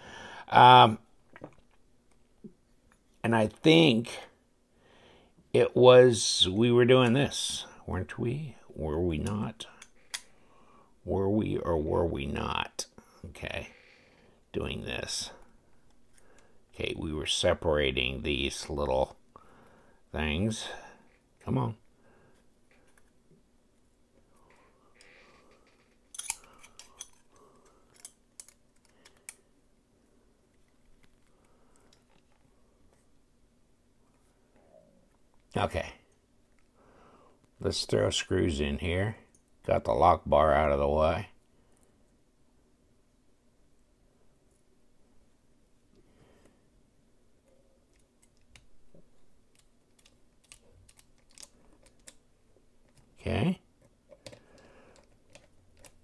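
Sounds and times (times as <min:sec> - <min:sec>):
folding knife parts clicking: 0:26.1 - 0:27.3, 0:27.9 - 0:29.4.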